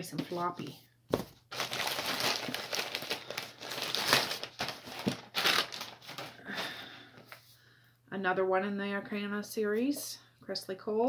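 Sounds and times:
packaging crinkling and rustling: 1.1 - 7.3.

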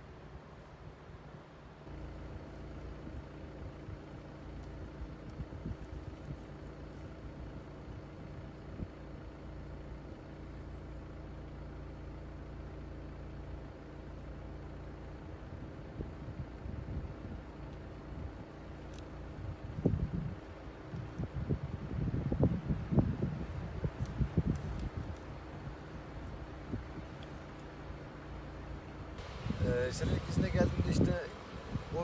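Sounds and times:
car engine idling: 0.0 - 32.0.

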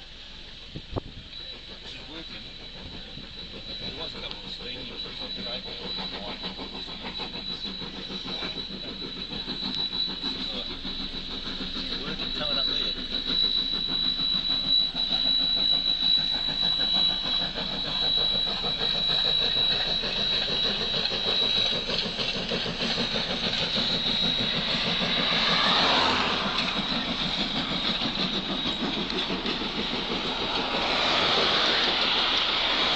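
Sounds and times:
steam locomotive chuffing: 0.0 - 32.9
wheels rolling on rails: 23.5 - 32.9.

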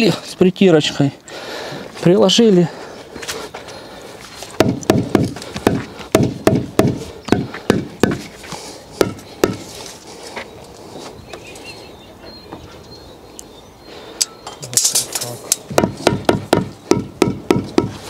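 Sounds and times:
rubber mallet tapping concrete block: 4.6 - 8.2, 9.0 - 9.6, 15.7 - 18.0.

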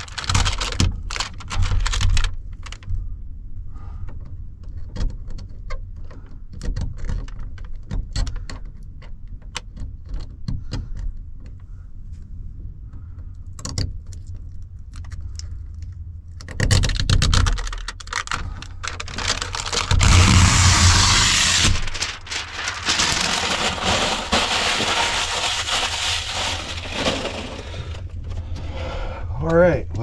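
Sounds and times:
window tint film peeling: 18.9 - 27.9.

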